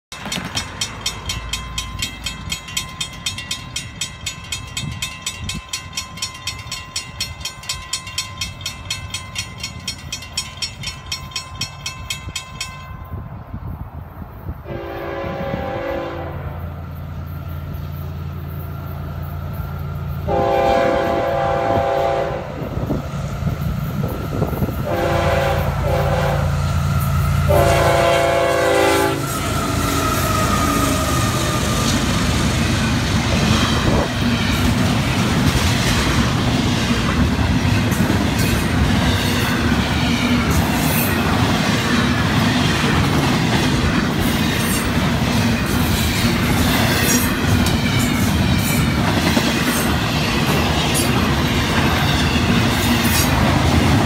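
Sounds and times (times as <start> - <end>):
crossing bell dinging: 0.1 - 13.7
low rumble of locomotives: 0.1 - 54.0
locomotive air horn blasts: 14.6 - 16.6, 20.2 - 22.7, 24.8 - 26.7, 27.4 - 31.6.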